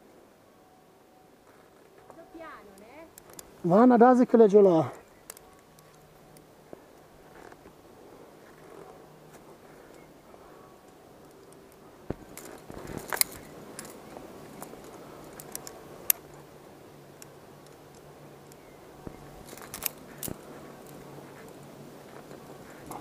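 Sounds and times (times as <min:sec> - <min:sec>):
carabiners clinking: 0:02.0 - 0:03.6, 0:10.8 - 0:16.4, 0:17.2 - 0:23.0.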